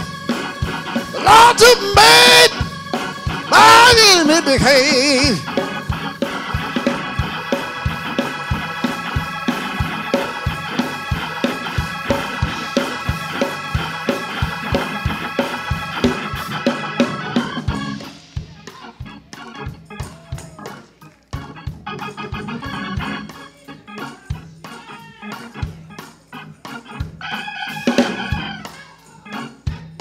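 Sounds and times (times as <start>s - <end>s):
organ chords: 0.0s - 30.0s
fast percussive beat: 0.7s - 20.7s.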